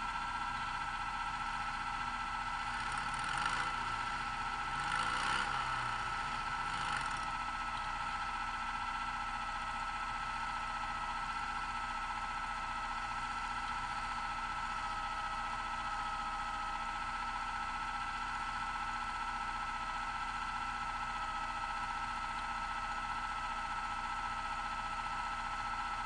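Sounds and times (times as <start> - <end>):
buggy engines idling: 0.0 - 26.0.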